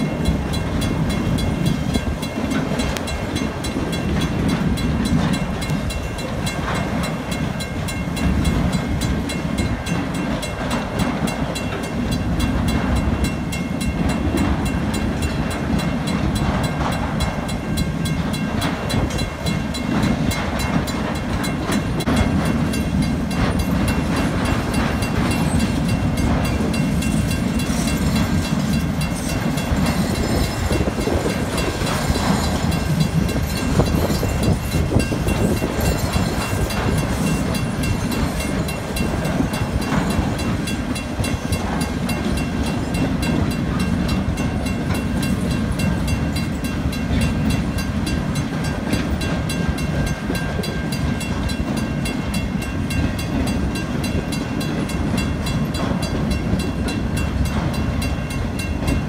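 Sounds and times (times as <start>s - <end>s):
crossing warning bell ringing: 0.0s - 59.0s
train wheels rumbling on rails: 0.0s - 59.0s.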